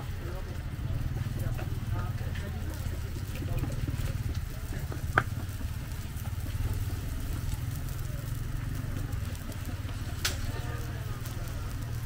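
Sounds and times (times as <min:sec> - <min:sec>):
small engine running: 0:00.2 - 0:12.0.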